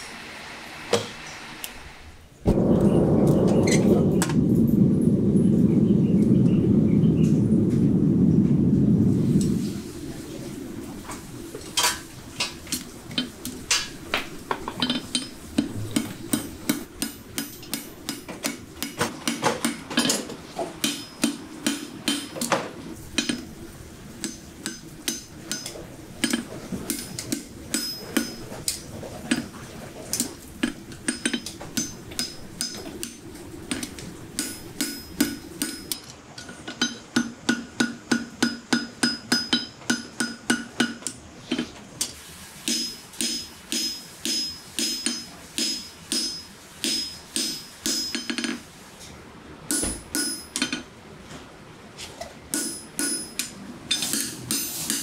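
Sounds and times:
hammer striking steel on anvil: 20.8 - 22.5, 24.2 - 28.4, 31.1 - 41.6, 42.6 - 48.6, 49.7 - 50.8, 52.5 - 55.0.

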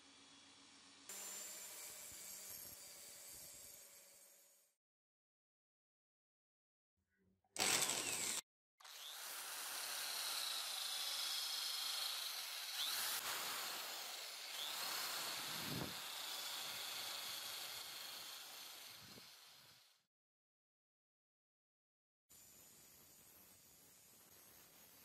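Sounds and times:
grinding stone on steel blade: 7.6 - 8.4.

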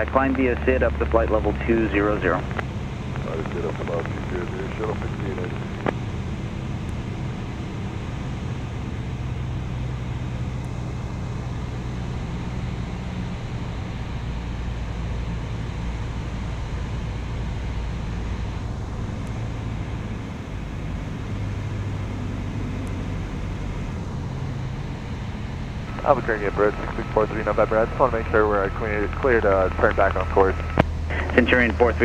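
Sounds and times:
airplane engine drone: 0.0 - 32.0
airflow noise: 17.4 - 32.0.

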